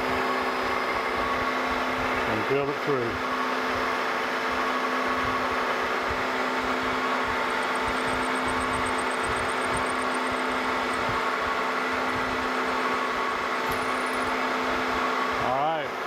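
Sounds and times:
milling machine spindle running: 0:05.9 - 0:15.4
fast high-pitched ticking: 0:06.9 - 0:12.9
drill bit cutting brass: 0:06.9 - 0:14.6.

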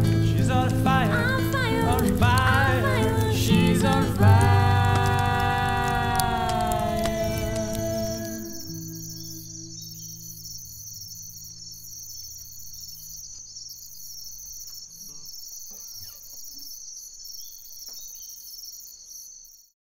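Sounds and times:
insects chirping: 0:00.0 - 0:19.7
low sustained musical note: 0:04.8 - 0:11.8.

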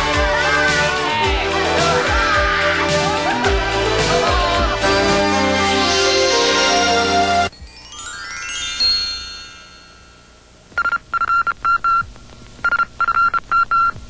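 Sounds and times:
chiming synthesizer jingle: 0:07.6 - 0:10.3.

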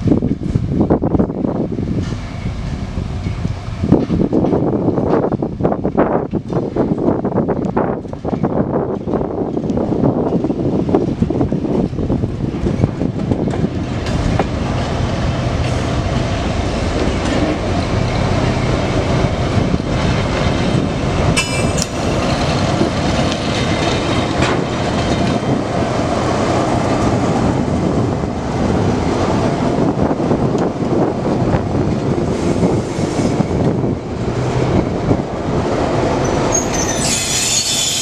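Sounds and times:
train wheels rumbling on rails: 0:00.0 - 0:38.0
high wheel squeal: 0:36.2 - 0:38.0.

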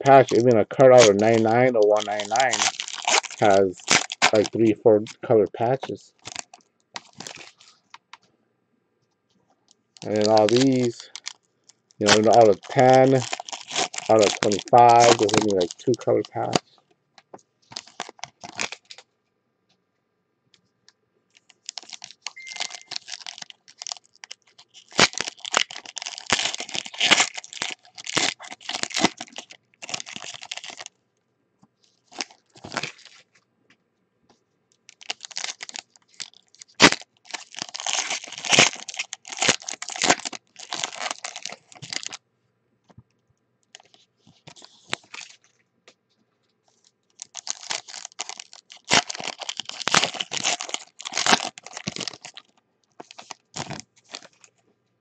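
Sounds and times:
foil wrappers crinkling and tearing: 0:00.0 - 0:07.8, 0:10.0 - 0:16.7, 0:17.6 - 0:19.1, 0:21.3 - 0:30.9, 0:31.8 - 0:33.4, 0:34.8 - 0:42.2, 0:43.7 - 0:45.5, 0:46.7 - 0:54.5.

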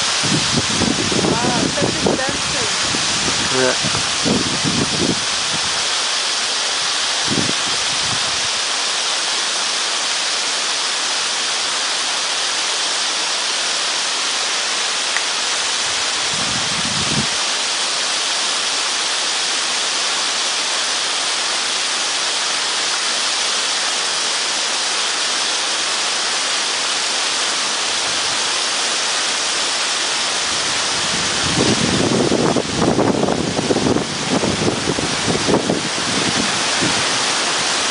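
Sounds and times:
wind buffeting the microphone: 0:00.0 - 0:06.0, 0:07.0 - 0:08.6, 0:15.8 - 0:17.4, 0:30.4 - 0:37.9
waterfall hissing: 0:00.0 - 0:37.9.

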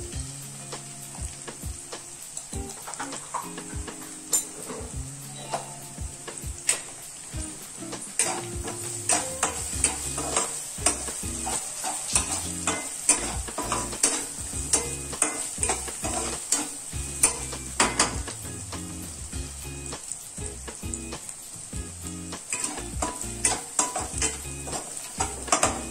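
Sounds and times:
onions sizzling in hot oil: 0:00.0 - 0:25.9
spatula scraping a pan: 0:08.0 - 0:18.2, 0:22.4 - 0:25.9.

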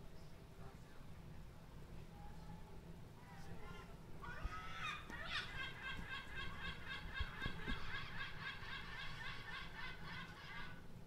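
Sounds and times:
bird laughing call: 0:04.5 - 0:10.8.

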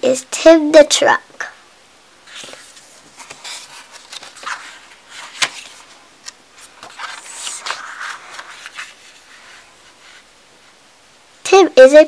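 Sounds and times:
book pages turning: 0:02.2 - 0:10.3.

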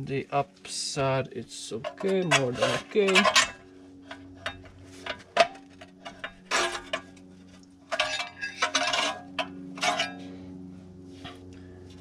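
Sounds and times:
metal tools clinking on steel: 0:01.7 - 0:07.1, 0:07.9 - 0:10.3.

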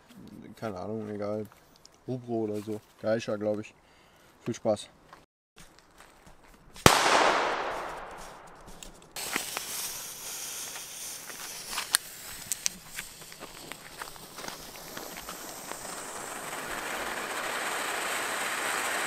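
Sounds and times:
crackles and pops: 0:06.8 - 0:19.0
sharp firework bang: 0:06.9 - 0:08.8
ground fountains hissing: 0:09.2 - 0:19.0.

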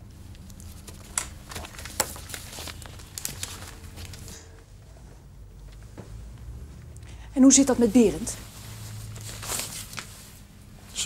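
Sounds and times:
paper rustling: 0:00.3 - 0:04.6, 0:08.5 - 0:10.4.

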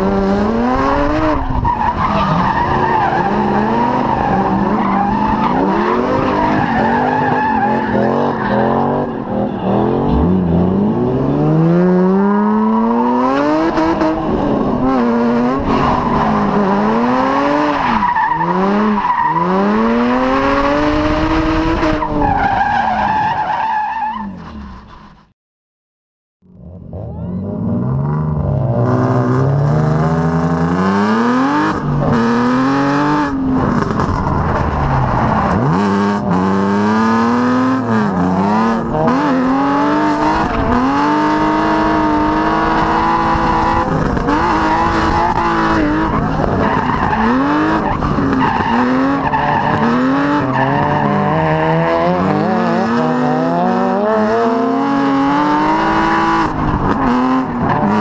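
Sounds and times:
car engine revving: 0:26.5 - 0:58.0.

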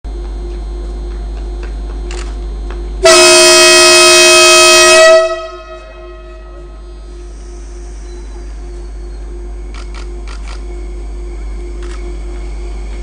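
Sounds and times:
low steady hum: 0:00.1 - 0:13.0
train horn blast: 0:03.0 - 0:07.0.

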